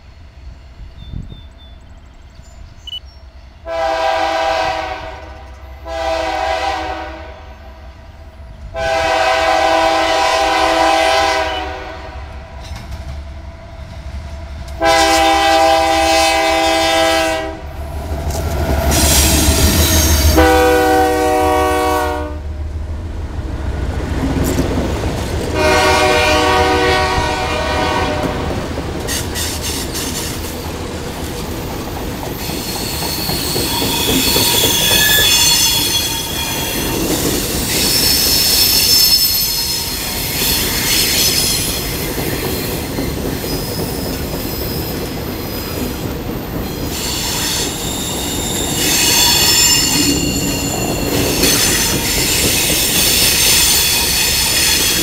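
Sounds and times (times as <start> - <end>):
diesel locomotive rumble: 0.0 - 38.8
train air horn blasts: 3.6 - 7.7, 8.8 - 12.6, 14.8 - 17.8, 18.8 - 22.5, 25.5 - 28.5, 32.8 - 37.1, 46.9 - 55.0
wheels clattering on rails: 23.8 - 25.8, 28.2 - 38.8, 39.9 - 55.0.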